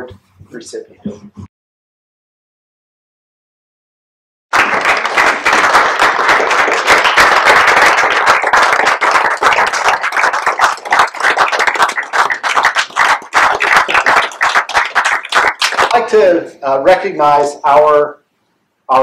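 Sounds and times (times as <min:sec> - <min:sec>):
crowd applauding: 0:04.5 - 0:16.1.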